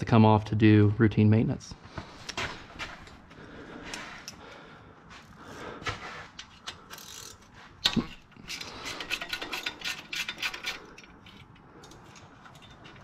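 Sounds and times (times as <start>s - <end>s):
ratchet wrench clicking: 6.9s - 13.0s.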